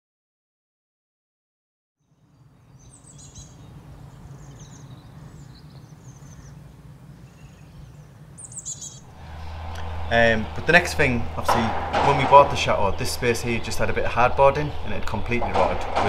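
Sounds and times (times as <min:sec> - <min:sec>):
small birds chirping: 0:02.0 - 0:10.0
low ambient rumble: 0:02.8 - 0:16.0
low hum: 0:03.5 - 0:16.0.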